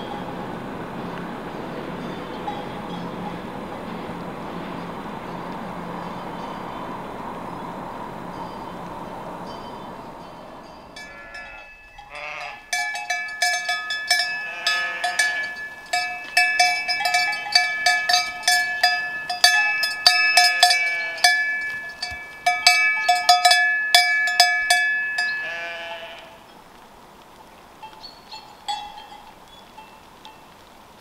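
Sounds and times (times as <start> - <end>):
sheep bell clanging: 0.0 - 0.8, 1.9 - 6.9, 9.4 - 26.2, 27.8 - 30.5
sheep bleating: 11.0 - 12.9, 14.1 - 15.8, 20.2 - 21.9, 25.2 - 26.5.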